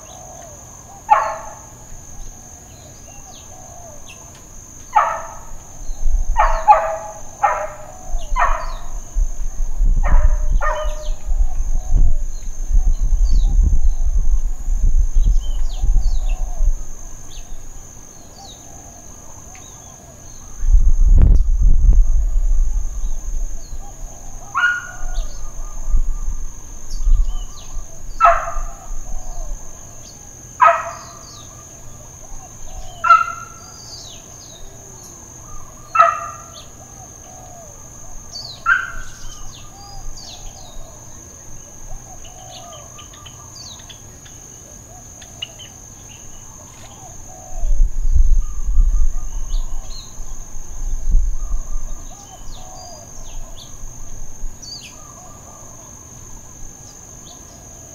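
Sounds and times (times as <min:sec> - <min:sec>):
birds chirping: 0:00.0 - 0:09.3, 0:10.1 - 0:14.2, 0:22.8 - 0:44.5
high insect drone: 0:00.0 - 0:57.9
distant dog barking: 0:01.0 - 0:01.8, 0:04.9 - 0:05.6, 0:06.3 - 0:09.1, 0:10.0 - 0:11.4, 0:24.4 - 0:25.8, 0:28.2 - 0:29.4, 0:30.6 - 0:31.4, 0:32.9 - 0:33.7, 0:35.6 - 0:36.8, 0:38.6 - 0:39.2.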